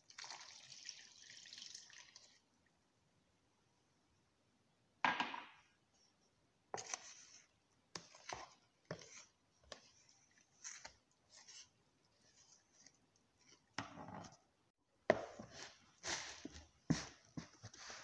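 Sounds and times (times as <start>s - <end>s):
wooden spoon scraping bowl: 6.7s - 14.4s, 15.1s - 18.0s.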